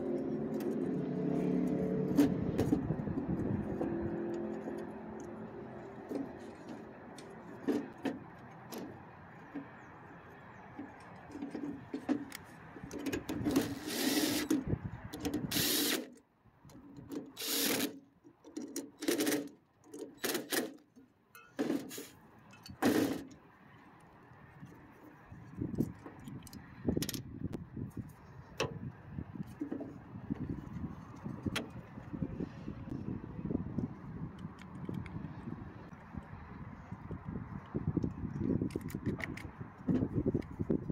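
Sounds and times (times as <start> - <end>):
cordless drill driving screws: 13.5 - 14.6, 15.5 - 16.1, 17.4 - 18.0.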